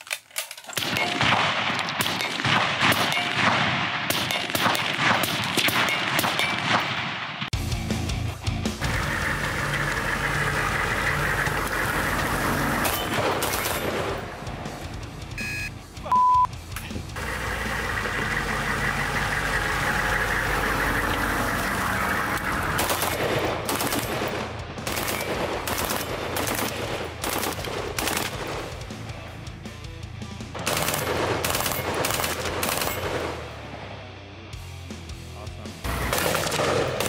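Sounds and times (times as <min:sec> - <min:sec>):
rifle shots: 0:00.7 - 0:07.6, 0:08.8 - 0:14.9, 0:17.8 - 0:29.0, 0:30.6 - 0:33.8, 0:35.9 - 0:37.0
background music: 0:00.8 - 0:37.0
electronic beep: 0:15.4 - 0:16.5.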